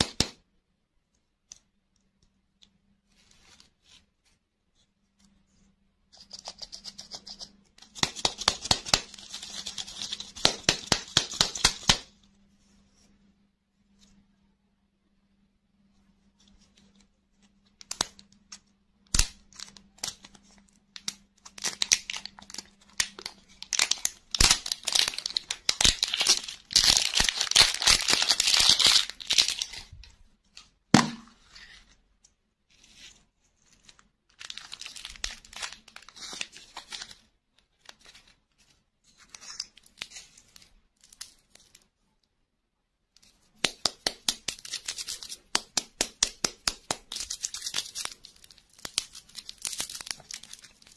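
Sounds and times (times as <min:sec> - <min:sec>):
plastic wrapper crinkling: 0:19.1 - 0:30.7, 0:32.8 - 0:41.8, 0:46.6 - 0:50.9.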